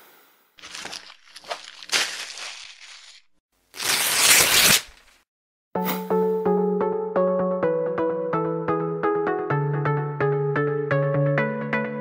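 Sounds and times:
paper crumpling and tearing: 0.6s - 5.2s.

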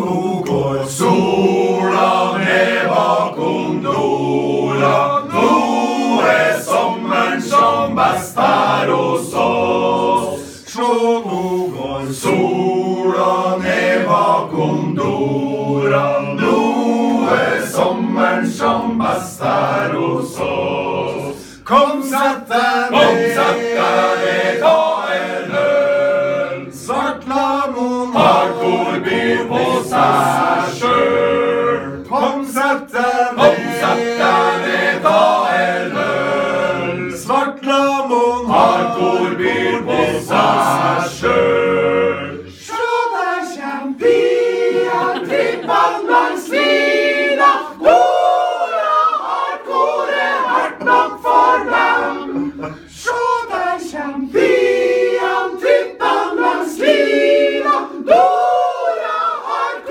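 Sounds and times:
men's choir singing a cappella: 0.0s - 59.9s.

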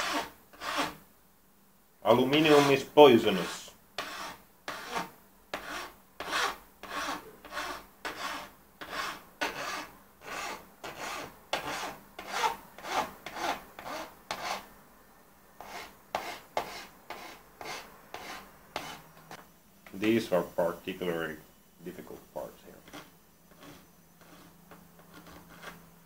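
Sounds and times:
file rasping on metal: 0.0s - 1.0s, 2.4s - 2.8s, 3.4s - 14.6s, 15.6s - 19.3s, 22.8s - 25.8s.

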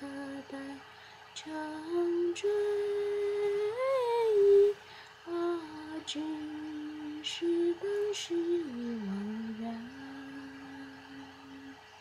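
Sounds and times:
woman singing slow melody: 0.0s - 12.0s.

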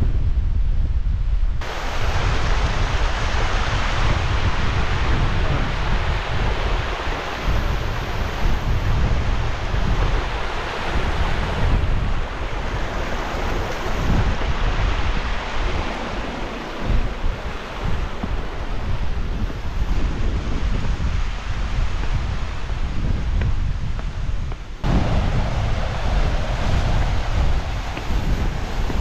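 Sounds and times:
wind buffeting microphone: 0.0s - 29.0s
stream rushing over rocks: 1.6s - 20.2s, 24.8s - 29.0s.

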